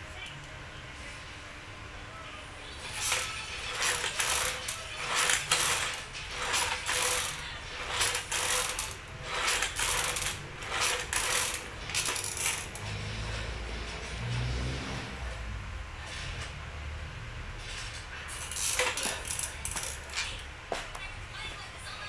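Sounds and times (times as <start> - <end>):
exercise machine clinking and rattling: 3.0 - 12.9, 18.4 - 20.2.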